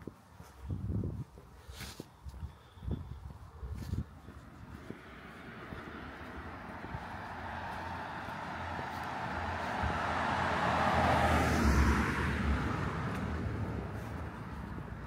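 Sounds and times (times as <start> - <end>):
car passing: 4.3 - 15.0.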